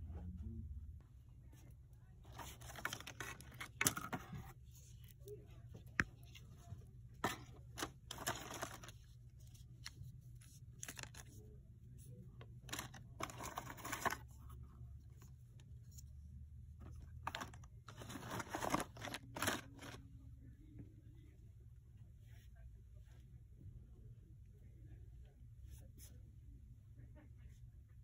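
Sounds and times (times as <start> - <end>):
low steady hum: 0.0 - 28.0
rustling and handling noise: 1.0 - 20.2.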